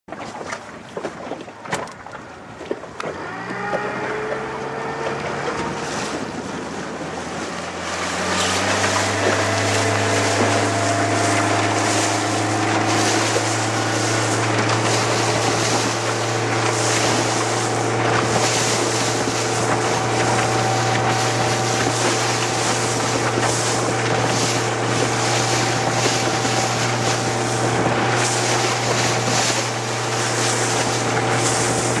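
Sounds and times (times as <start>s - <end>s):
motorboat engine: 0.1s - 32.0s
water rushing past: 0.1s - 32.0s
wind buffeting microphone: 0.8s - 32.0s.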